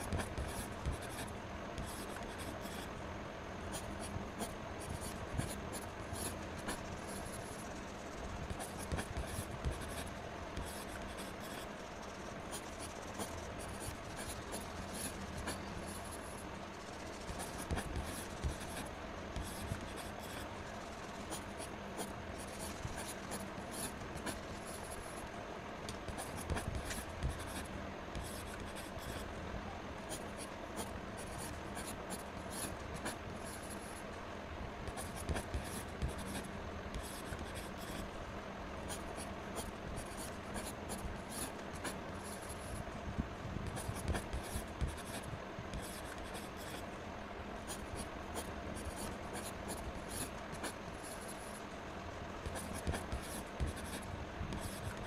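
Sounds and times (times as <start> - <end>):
marker scratching on paper: 0.0 - 2.9, 8.4 - 11.7, 12.5 - 16.4, 17.1 - 20.5, 21.3 - 25.2, 26.1 - 29.3, 30.1 - 34.0, 34.9 - 38.1, 43.6 - 46.8, 47.7 - 51.6, 52.4 - 55.0
steady low hum: 0.0 - 55.0.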